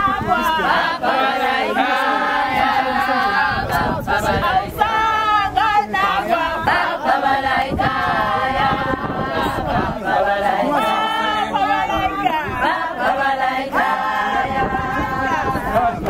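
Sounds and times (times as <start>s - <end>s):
women singing unaccompanied: 0.0s - 16.0s.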